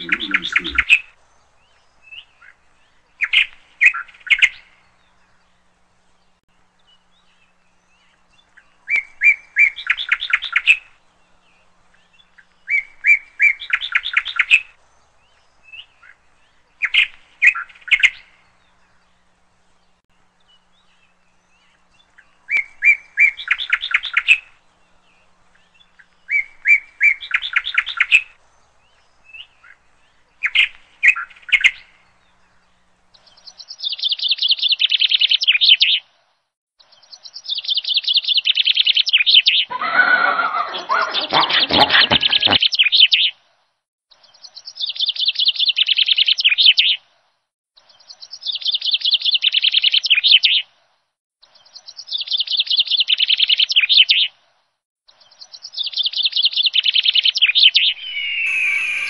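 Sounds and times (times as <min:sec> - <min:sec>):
birds twittering: 0:00.0 - 0:03.4, 0:39.1 - 0:43.3, 0:57.4 - 0:59.0
songbird singing with trill: 0:55.1 - 0:59.0.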